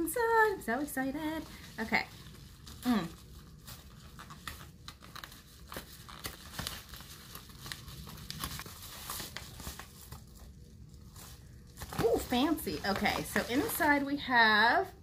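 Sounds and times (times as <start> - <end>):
package wrapping torn and crinkled: 2.2 - 13.8.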